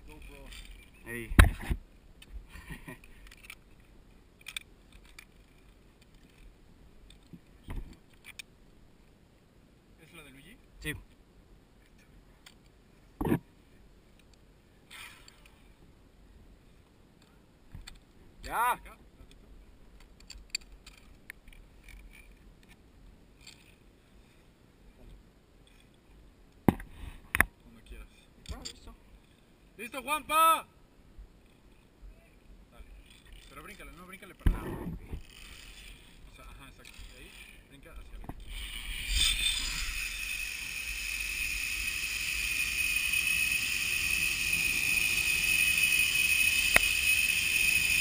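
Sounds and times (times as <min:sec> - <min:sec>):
carabiners clicking and rattling: 0:00.0 - 0:01.0, 0:02.8 - 0:07.3, 0:20.0 - 0:22.8, 0:23.4 - 0:23.8, 0:33.0 - 0:34.4, 0:35.2 - 0:37.7, 0:38.4 - 0:48.0.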